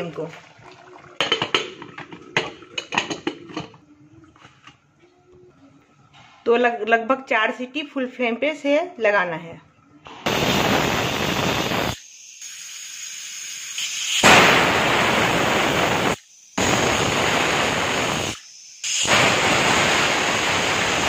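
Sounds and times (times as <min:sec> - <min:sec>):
soft steam hiss: 0:10.2 - 0:21.0
pressure cooker whistling: 0:10.3 - 0:21.0.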